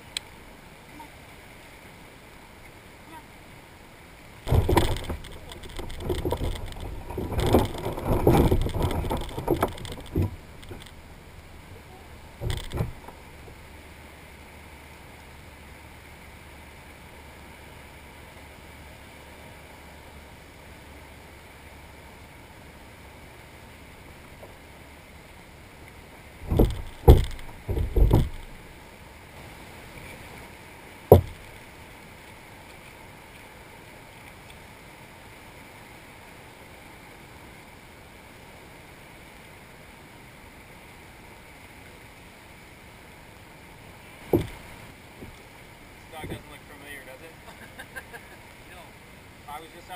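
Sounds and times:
gear knocking on kayak hull: 4.5s - 11.0s, 12.4s - 13.2s, 26.4s - 28.6s, 31.1s - 31.5s, 44.3s - 45.4s.

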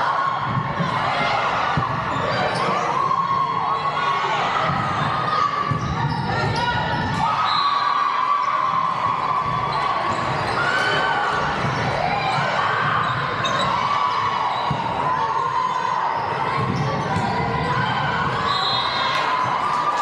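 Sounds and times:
sneakers squeaking on hardwood: 5.7s - 7.0s, 11.6s - 14.9s.

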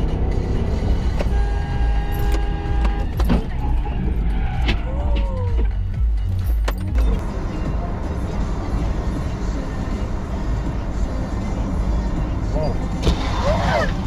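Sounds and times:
car road and engine rumble: 0.0s - 14.0s.

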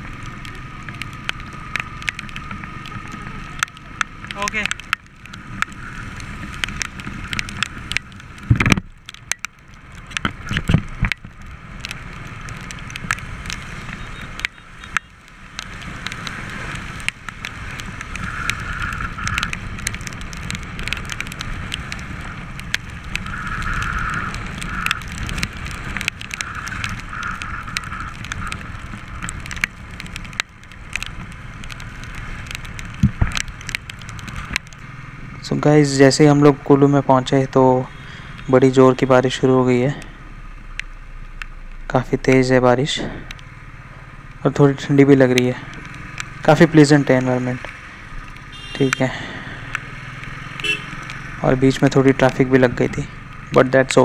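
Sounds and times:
raindrops ticking on camera: 0.0s - 54.0s
motorcycle engine running: 12.4s - 35.5s, 45.6s - 51.8s
tyre hiss on wet road: 47.5s - 51.4s.

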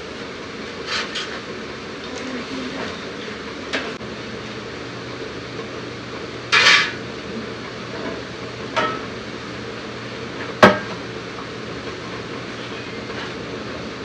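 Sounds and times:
steady background hum: 0.0s - 14.0s
metal pots clanking: 8.7s - 9.1s.

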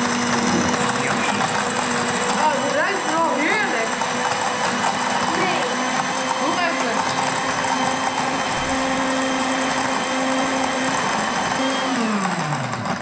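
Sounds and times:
blender motor running: 0.0s - 13.0s.

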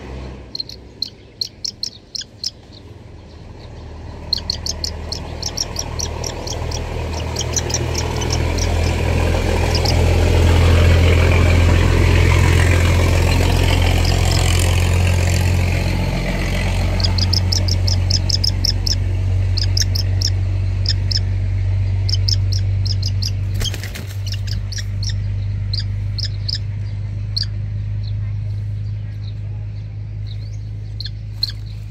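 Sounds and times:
low engine hum: 0.0s - 31.9s
young hawk calling: 0.5s - 2.9s, 3.6s - 11.8s, 12.8s - 14.5s, 16.6s - 21.4s, 22.0s - 27.6s, 30.9s - 31.8s.

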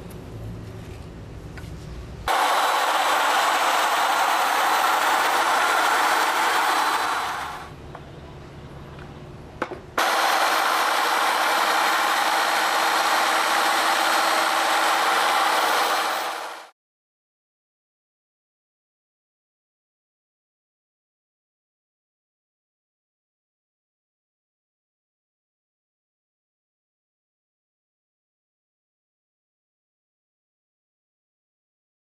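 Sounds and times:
polisher running on concrete: 2.3s - 7.7s, 10.0s - 16.7s.

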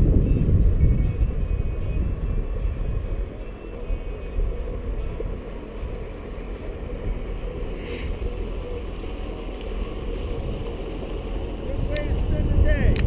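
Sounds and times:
wind buffeting microphone: 0.0s - 13.0s
brief hiss: 7.8s - 8.2s.

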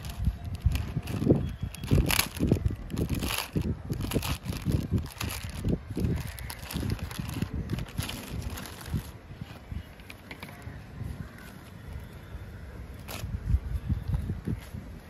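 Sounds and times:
plastic packaging crinkling: 0.0s - 9.2s, 13.0s - 13.3s.

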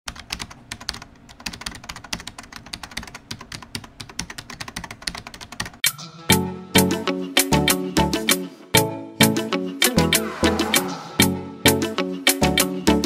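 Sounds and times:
computer keyboard typing: 0.1s - 5.8s.

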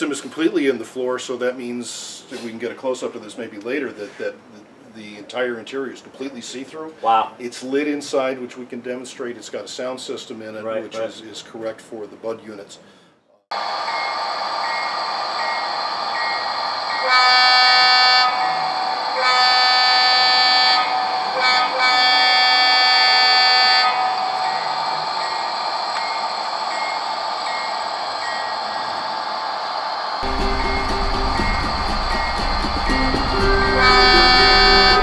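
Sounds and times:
air horn blasts: 17.0s - 18.5s, 19.2s - 24.2s, 30.2s - 35.0s
diesel engine running: 30.2s - 35.0s.

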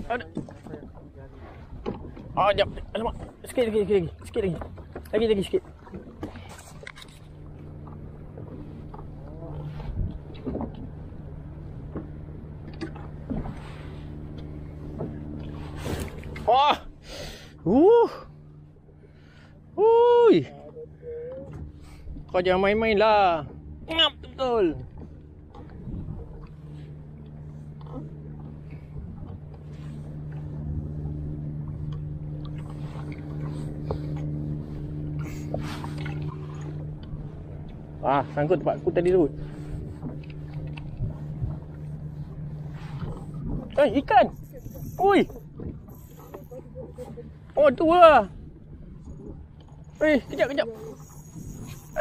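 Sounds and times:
water splashing against kayak: 0.0s - 18.4s, 24.8s - 52.0s
boat engine drone: 0.0s - 52.0s.

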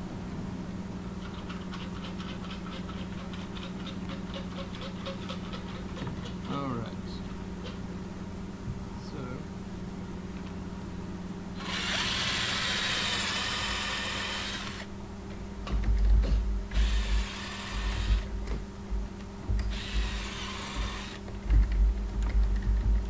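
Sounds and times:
drill boring into wood: 11.6s - 14.9s, 16.7s - 18.3s, 19.7s - 21.2s.

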